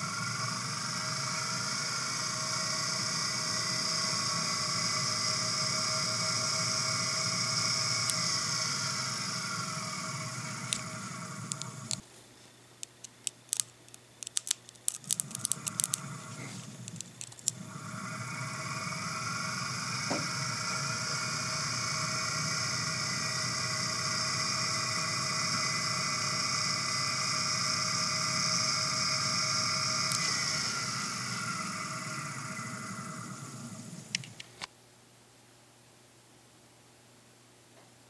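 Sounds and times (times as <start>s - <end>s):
vacuum cleaner motor whirring: 0.0s - 12.0s, 14.9s - 34.6s
plug prongs clicking and crackling: 12.8s - 16.1s.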